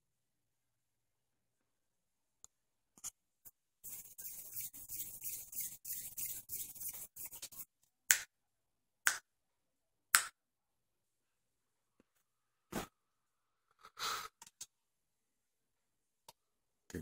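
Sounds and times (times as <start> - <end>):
scratchy rustling: 3.8 - 7.7
finger snaps: 9.1 - 9.3, 10.2 - 10.4.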